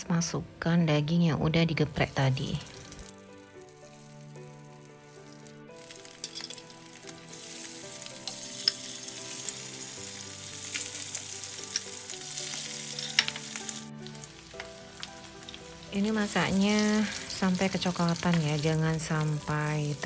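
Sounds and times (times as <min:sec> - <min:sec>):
meat sizzling in frying pan: 0:01.9 - 0:20.0
metal tongs clicking on pan: 0:05.8 - 0:06.7, 0:11.6 - 0:13.8.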